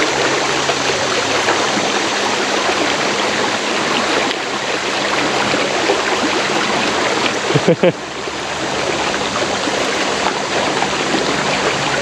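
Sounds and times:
creek water rushing: 0.0s - 12.0s.

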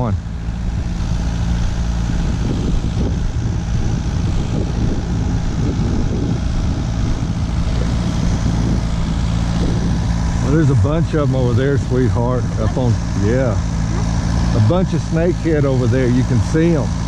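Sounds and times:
motor humming: 0.0s - 17.0s.

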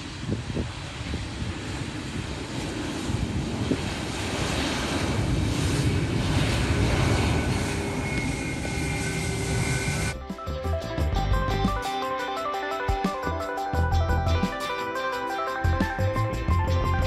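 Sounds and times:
jet engines roaring: 0.0s - 10.2s.

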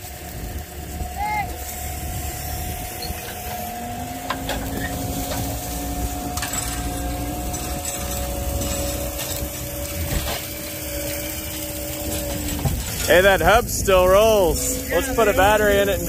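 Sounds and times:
diesel engine whining: 0.0s - 16.0s
metallic knocks and creaks: 3.0s - 13.6s.

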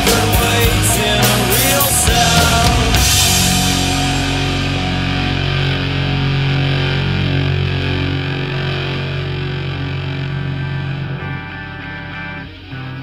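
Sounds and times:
drums and cymbals: 0.0s - 6.9s
distorted guitar and bass chords: 0.0s - 13.0s.

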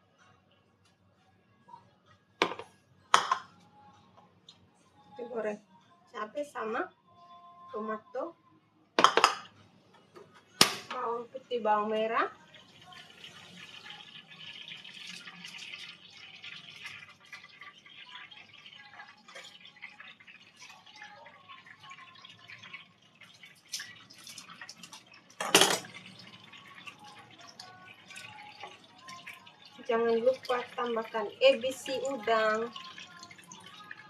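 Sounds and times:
faint water dripping: 12.2s - 34.0s.

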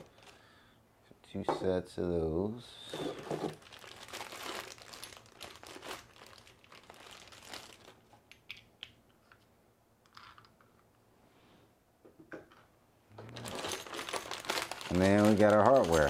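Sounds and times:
plastic bags crinkling: 0.0s - 0.5s, 3.2s - 8.6s, 13.2s - 16.0s.

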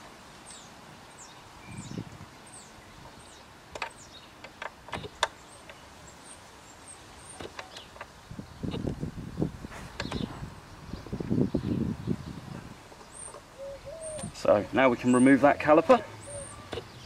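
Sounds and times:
small birds chirping: 0.3s - 17.0s
sharp metallic clicks: 3.7s - 5.8s.

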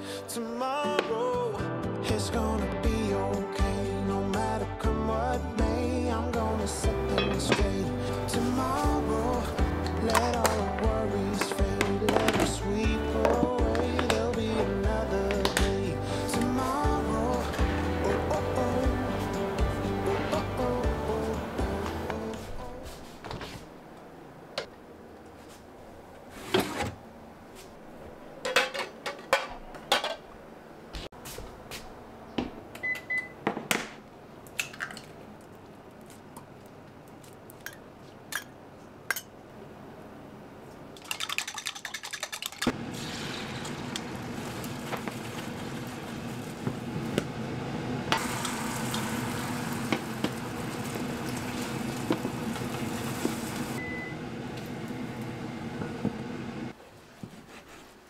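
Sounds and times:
egg cooking hiss: 41.3s - 53.8s.

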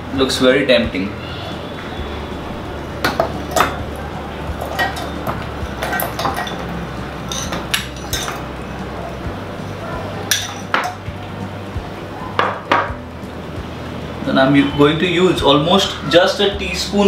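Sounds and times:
spoon clinking on bowl: 4.6s - 6.7s, 7.3s - 8.4s, 10.3s - 11.0s.

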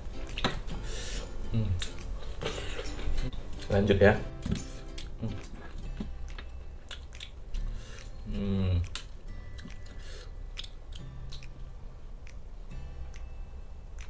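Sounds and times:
person humming: 1.4s - 3.4s, 5.1s - 5.7s, 8.0s - 9.1s
chewing: 1.5s - 3.7s, 4.6s - 12.5s
mouth clicks and smacks: 1.6s - 3.7s, 4.8s - 13.3s.

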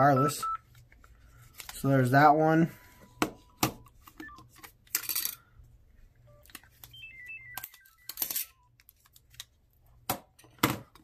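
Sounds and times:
descending phone beeps: 0.0s - 0.6s, 3.4s - 4.5s, 6.3s - 8.7s
short electronic beeps: 6.3s - 8.7s.

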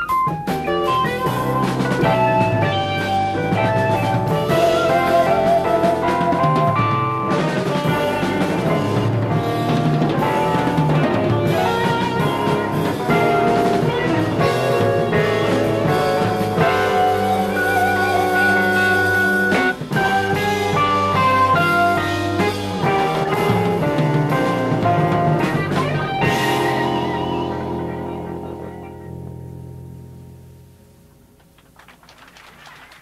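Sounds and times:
jazz-rock band playing live: 0.0s - 33.0s.

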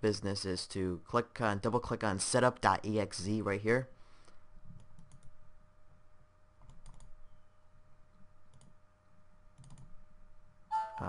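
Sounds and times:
faint computer mouse clicks: 6.6s - 7.1s, 8.5s - 8.8s, 9.6s - 9.9s.

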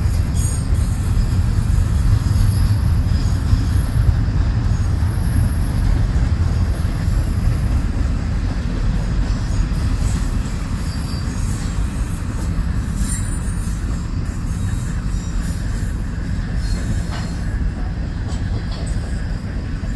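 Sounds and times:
train wheels rumbling on rails: 0.0s - 19.9s
high-pitched wheel squeal: 9.3s - 17.6s.

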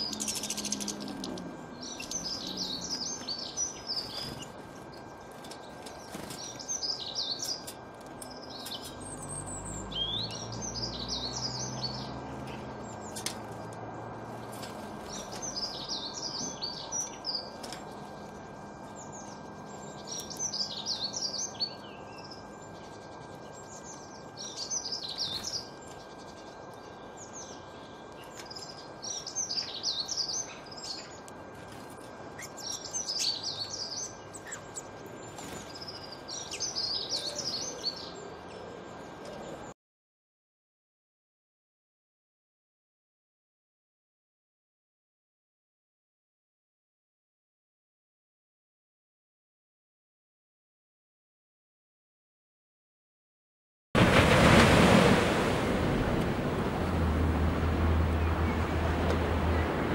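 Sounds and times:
songbird singing: 0.0s - 39.8s, 55.7s - 59.9s.

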